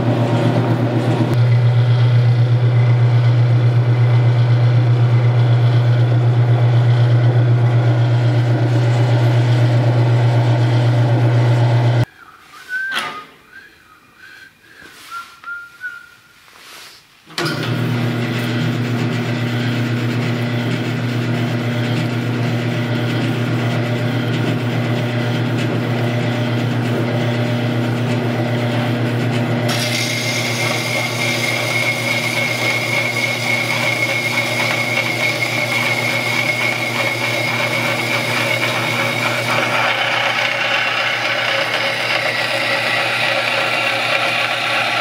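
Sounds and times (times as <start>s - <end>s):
bandsaw running with hum: 0.0s - 12.1s, 17.4s - 45.0s
blade cutting steel whine: 19.3s - 45.0s.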